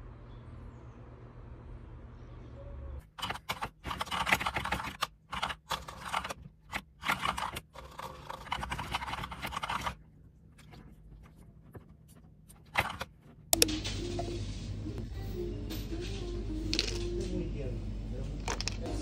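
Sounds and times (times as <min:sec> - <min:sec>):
mechanical keyboard keys clacking: 0:03.2 - 0:10.0.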